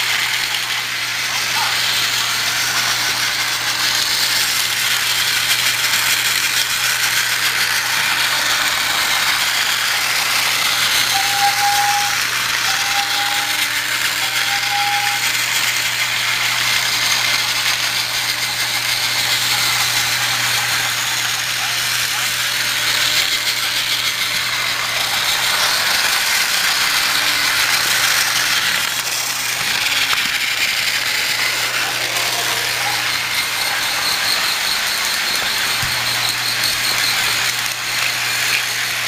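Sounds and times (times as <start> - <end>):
toy train motor whirring: 0.0 - 39.0
wheels rattling on plastic track: 0.0 - 39.0.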